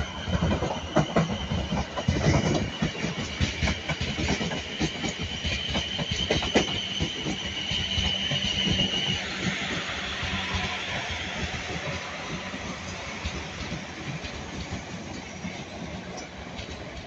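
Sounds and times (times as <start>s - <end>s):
train low rumble: 0.0s - 17.0s
train wheels clicking over joints: 0.0s - 17.0s
high-pitched wheel squeal: 5.2s - 13.0s.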